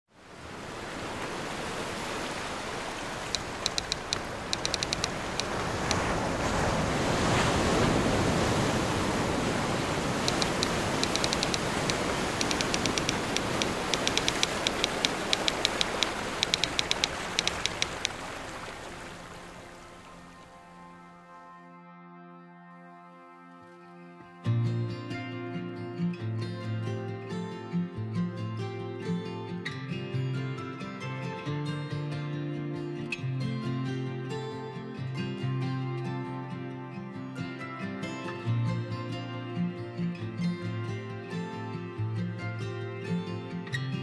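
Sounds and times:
ocean waves washing ashore: 0.1s - 21.0s
rapid high-pitched clicking: 3.3s - 6.0s, 10.3s - 18.2s.

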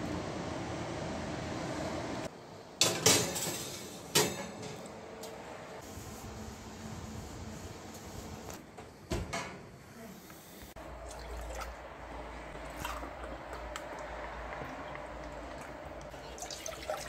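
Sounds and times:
milk pouring into metal pot: 15.6s - 17.0s.

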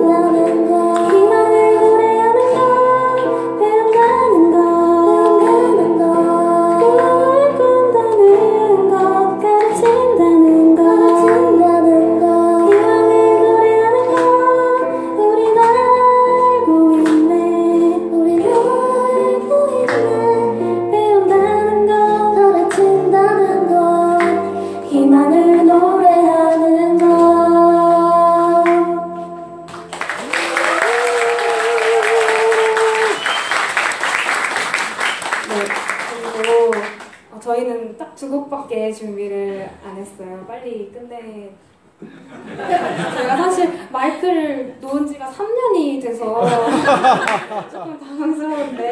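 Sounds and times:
audience applause: 29.9s - 37.2s, 46.9s - 47.7s.

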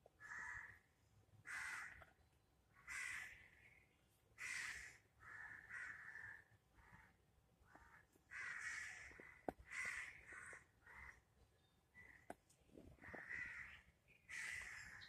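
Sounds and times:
bird harsh calls: 13.0s - 15.0s.

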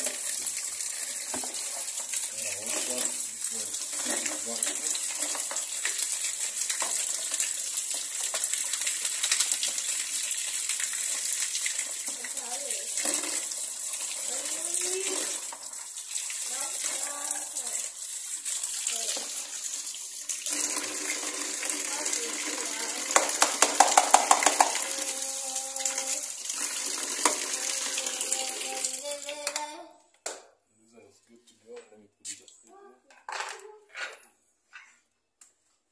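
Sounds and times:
tap water splashing into basin: 0.0s - 30.5s
sharp plastic knocks: 23.2s - 24.8s.

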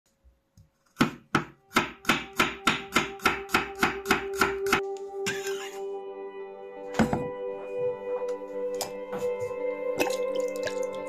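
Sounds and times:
knife chopping on wooden board: 0.8s - 4.8s.

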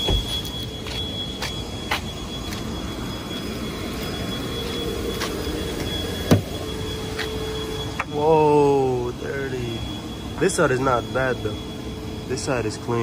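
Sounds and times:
thin high tone: 0.0s - 13.0s
footsteps on gravel: 0.1s - 2.7s, 4.6s - 5.5s.

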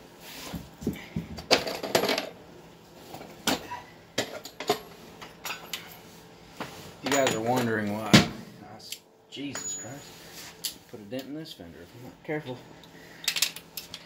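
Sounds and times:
steel tools clinking: 9.5s - 10.2s.

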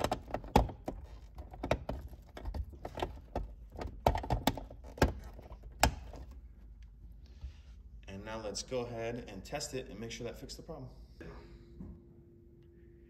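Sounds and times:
hand handling wiring: 0.0s - 7.0s.

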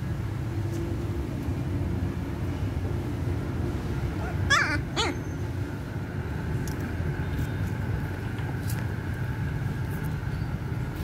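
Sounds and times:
puppy whimpering: 4.2s - 5.3s.

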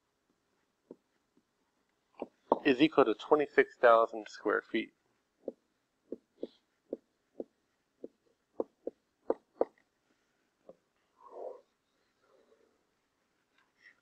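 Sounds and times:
stylus tapping on pen tablet: 2.2s - 2.7s, 5.4s - 9.8s.

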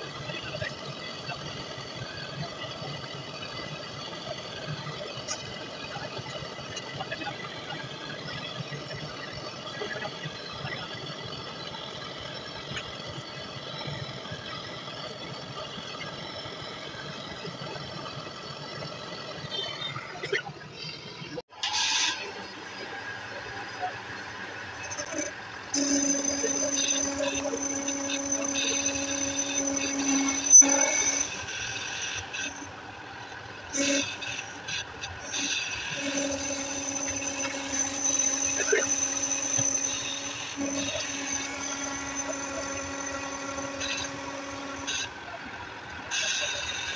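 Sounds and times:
faint whining tones: 0.0s - 46.9s
machine humming: 20.7s - 46.9s.

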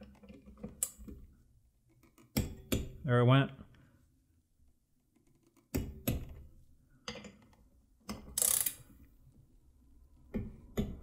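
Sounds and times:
rasping ratchet: 8.4s - 8.8s
torque wrench clicks: 8.4s - 8.8s.

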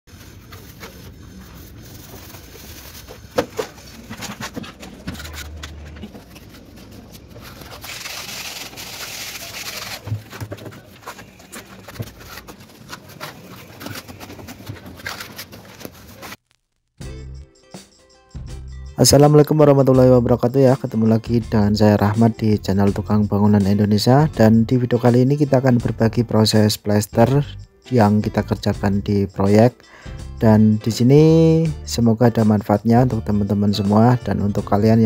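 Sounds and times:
float rubbing hiss on plaster: 0.1s - 4.1s, 6.8s - 16.3s.

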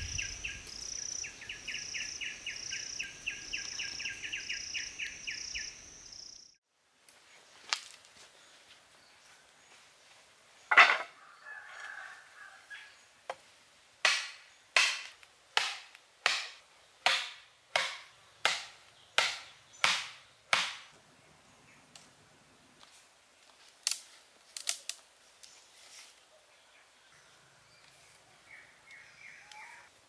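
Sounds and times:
wooden stakes pounded into sand: 14.0s - 21.0s.

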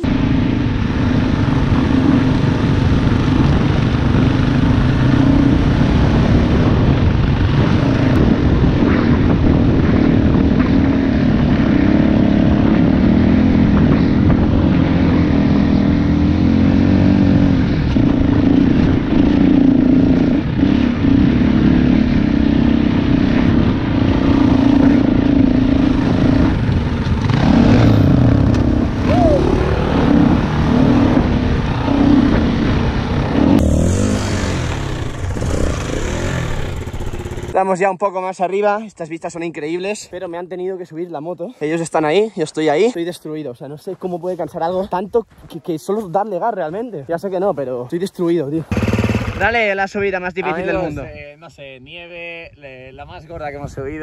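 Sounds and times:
dirt bike engine under throttle: 0.0s - 37.6s, 48.6s - 50.9s.

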